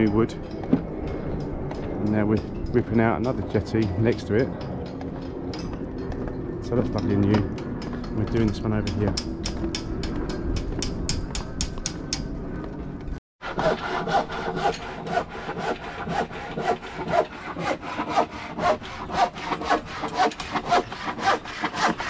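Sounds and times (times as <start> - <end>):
hand saw cutting wood: 13.4 - 22.0.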